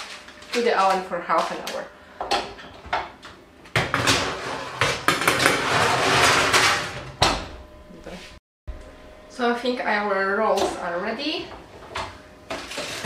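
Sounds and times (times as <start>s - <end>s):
metal tray scraping oven rack: 4.0s - 7.2s, 11.8s - 13.0s
oven door shutting thump: 7.2s - 7.6s.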